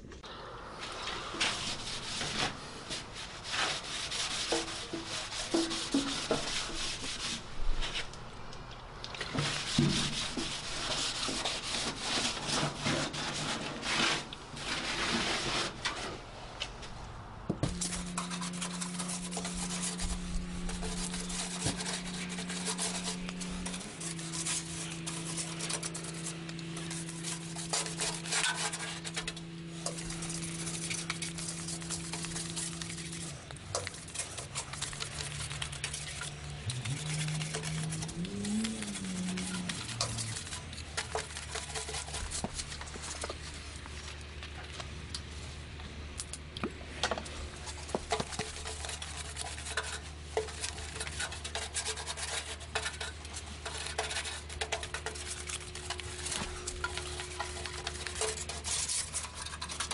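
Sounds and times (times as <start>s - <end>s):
sandpaper rubbing a car panel: 1.4s - 7.4s, 9.4s - 15.8s, 17.7s - 29.2s, 29.8s - 33.4s, 48.2s - 59.9s
low hum with higher tone: 12.8s - 59.9s.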